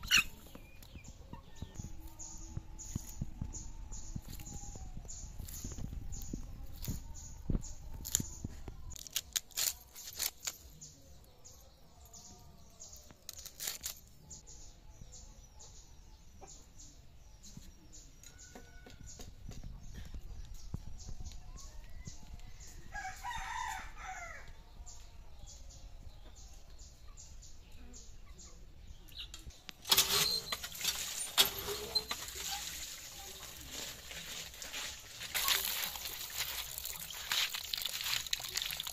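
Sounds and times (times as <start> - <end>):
hand pump being worked: 29.8 - 33.1
water gushing and splashing: 35.3 - 38.9.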